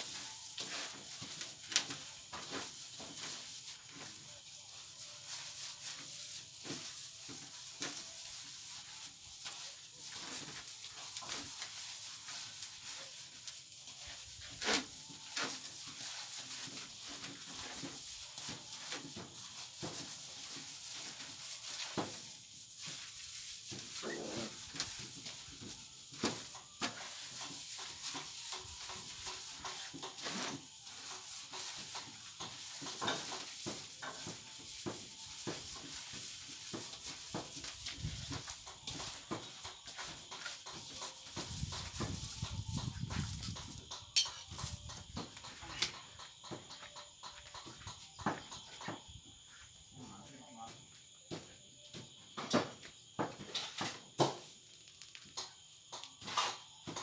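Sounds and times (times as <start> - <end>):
plastic bag rustling: 0.0 - 29.6.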